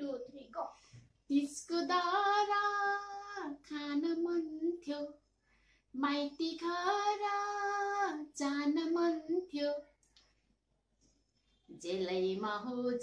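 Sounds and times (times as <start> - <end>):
woman singing: 1.3 - 5.2, 6.0 - 9.9, 11.8 - 13.0.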